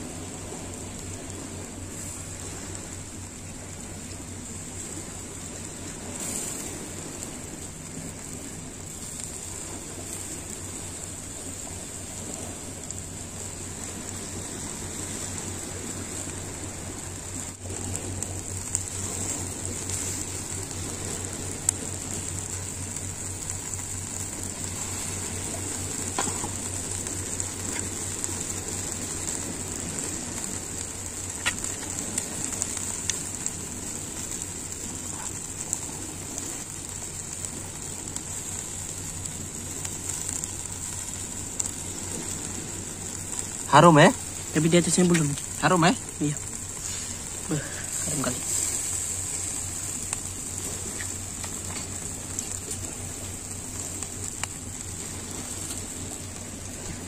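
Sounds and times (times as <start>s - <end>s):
fish sizzling on a grill: 0.0s - 57.0s
faint clicks and pops: 17.3s - 57.0s.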